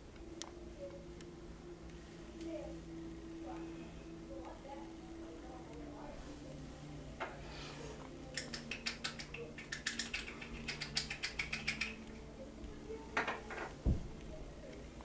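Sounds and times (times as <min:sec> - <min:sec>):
small hard objects clicking: 0:08.3 - 0:12.0
low thump: 0:13.8 - 0:14.1.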